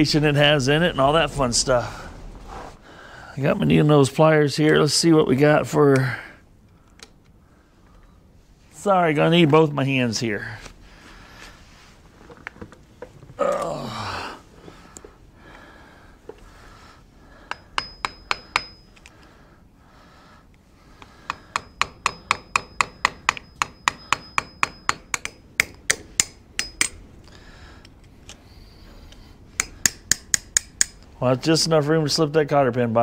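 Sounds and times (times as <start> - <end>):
hammer tapping on steel: 17.4 - 18.9, 21.0 - 27.0, 29.6 - 31.0.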